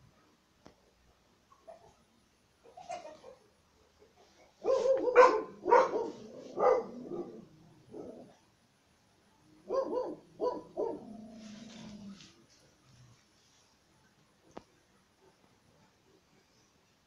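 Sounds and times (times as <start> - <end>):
puppy barking: 4.6 - 8.2, 9.7 - 11.1.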